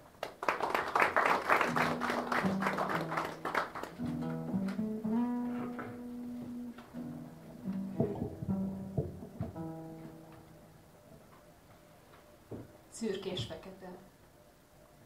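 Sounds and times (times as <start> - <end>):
guitar strumming: 1.6 - 11.1
held low string notes: 1.7 - 10.8.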